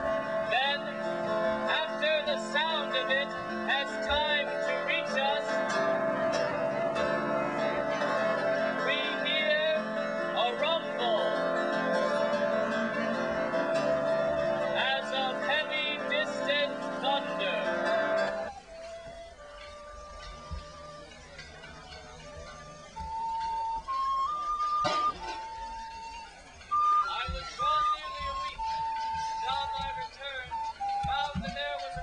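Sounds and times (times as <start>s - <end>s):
larger string instrument: 0.0s - 32.0s
plucked zither-like instrument: 19.5s - 26.8s.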